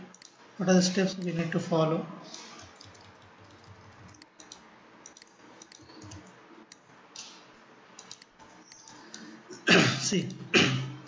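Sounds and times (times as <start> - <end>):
mouse and keyboard clicks: 2.3 - 7.4, 8.0 - 9.3.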